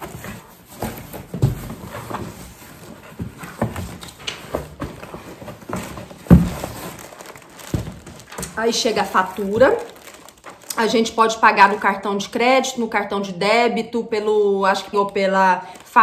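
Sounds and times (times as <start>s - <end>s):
cardboard box knocks and rustling: 0.0s - 8.3s.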